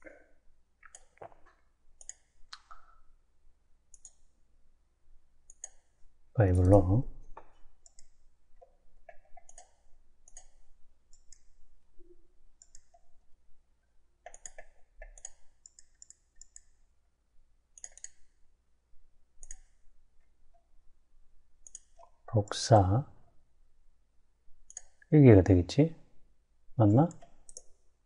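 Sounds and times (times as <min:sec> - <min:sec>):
computer mouse clicking: 0:00.9 - 0:02.9, 0:03.9 - 0:04.3, 0:05.5 - 0:06.0, 0:06.7 - 0:11.6, 0:12.6 - 0:13.1, 0:14.2 - 0:16.8, 0:17.7 - 0:18.4, 0:19.4 - 0:19.8, 0:21.6 - 0:22.2, 0:24.6 - 0:25.1, 0:27.0 - 0:27.9.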